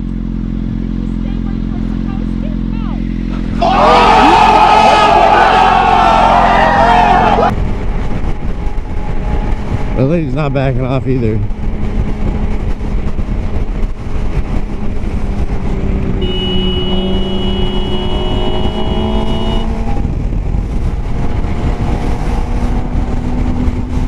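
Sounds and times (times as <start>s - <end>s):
motorcycle engine running: 0.0s - 3.5s, 11.0s - 24.0s
wind rush: 3.4s - 24.0s.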